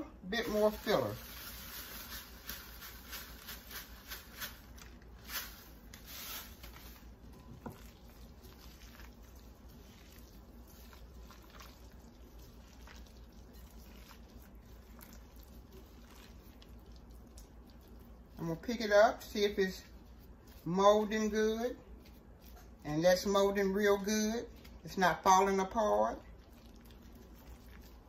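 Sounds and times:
wet squishing of hands mixing: 0.0s - 28.0s
plastic bag crackling: 0.4s - 17.7s.

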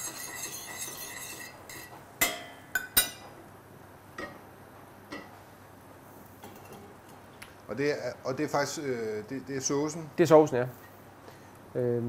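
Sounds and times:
metal spoon stirring in saucepan: 0.0s - 3.3s.

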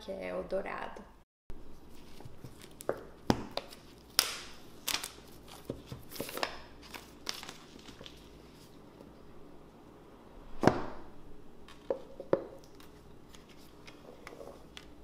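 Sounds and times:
plastic wrap crinkling: 3.6s - 8.8s.

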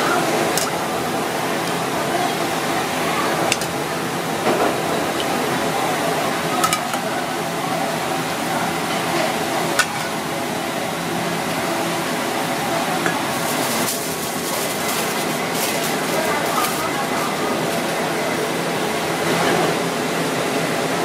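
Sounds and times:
kitchen background noise: 0.0s - 21.0s
aluminium foil crinkling: 13.2s - 17.9s.

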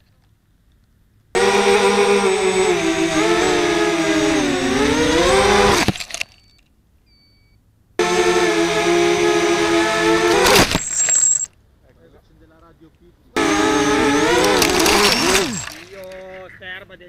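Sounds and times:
quadcopter motors whining: 1.4s - 6.6s, 8.0s - 11.5s, 13.4s - 16.2s
drone crashing into grass: 3.1s - 6.2s.

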